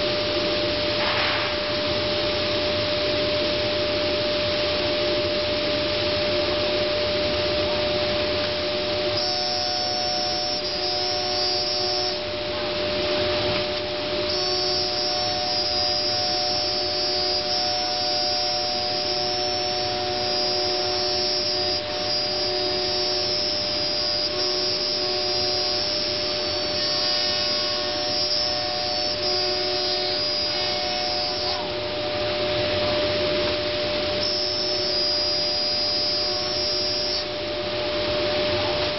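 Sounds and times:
higher intermittent whine: 0.0s - 38.9s
steady machine whine: 0.0s - 38.9s
rushing air noise: 0.9s - 2.2s.

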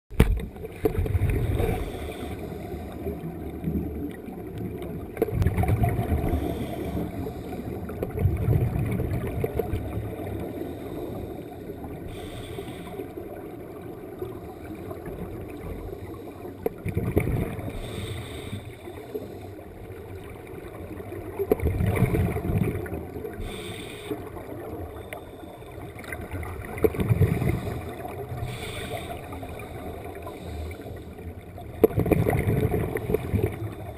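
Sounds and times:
exhaled air bubbling underwater: 0.1s - 33.9s
regulator inhalation hiss: 12.1s - 13.1s, 17.8s - 19.3s, 23.4s - 24.3s, 28.4s - 31.0s.

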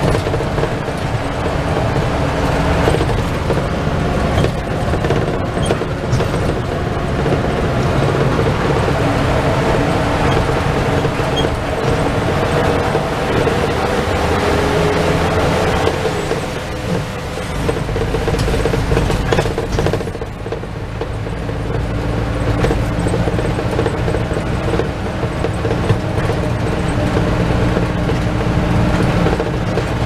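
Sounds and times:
bus engine drone: 0.0s - 30.0s
road noise: 0.0s - 30.0s
knocks: 2.8s - 15.1s, 15.7s - 21.9s.

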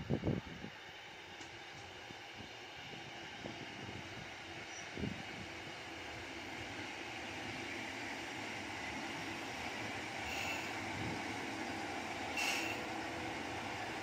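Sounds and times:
diesel railcar running: 0.0s - 14.0s
train brakes squealing: 4.6s - 5.0s, 10.2s - 10.8s, 12.3s - 13.1s.

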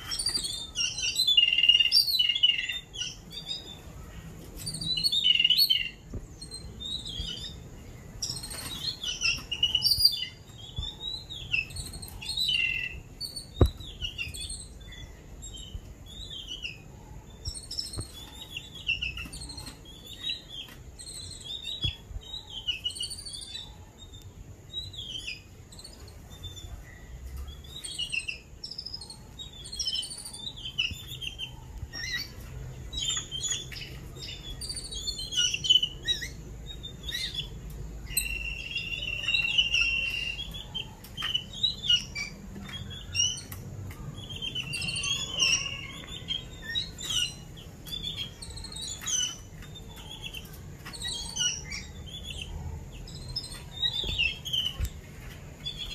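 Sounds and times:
birds chattering chirps: 0.0s - 55.9s.

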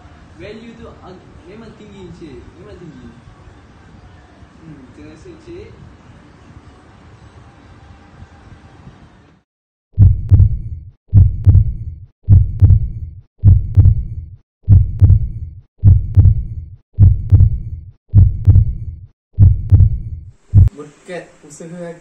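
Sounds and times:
heartbeat thumps: 10.0s - 20.7s.

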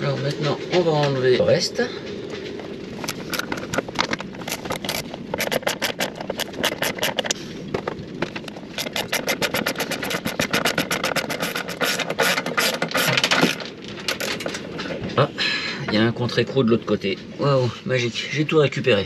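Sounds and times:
ratchet wrench clicking: 4.5s - 7.4s, 8.8s - 13.6s.

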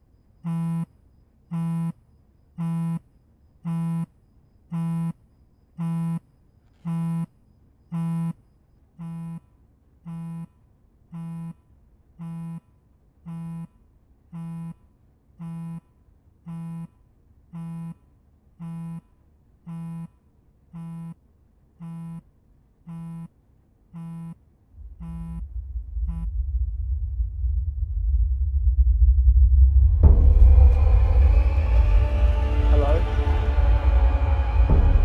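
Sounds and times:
electronic buzzer beeping: 0.4s - 0.9s, 1.5s - 2.0s, 2.6s - 3.0s, 3.6s - 4.1s, 4.7s - 5.2s, 5.8s - 6.2s, 6.8s - 7.3s, 7.9s - 8.4s, 9.0s - 21.2s, 21.8s - 22.3s, 22.9s - 23.3s, 23.9s - 24.4s, 25.0s - 25.4s
low rumble: 24.7s - 35.0s.

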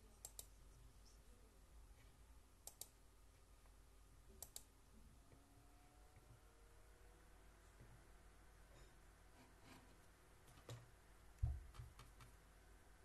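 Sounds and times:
faint double clicks: 2.6s - 3.0s.

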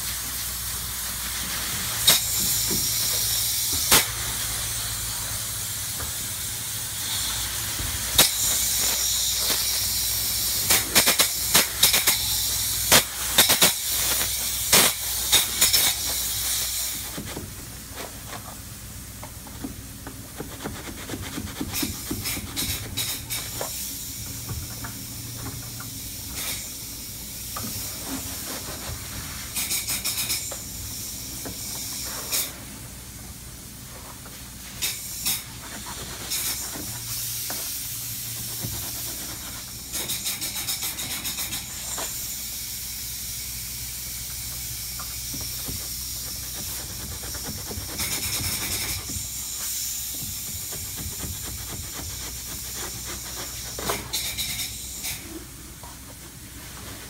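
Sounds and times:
spray foam gun hissing: 0.0s - 17.4s, 34.7s - 55.3s.

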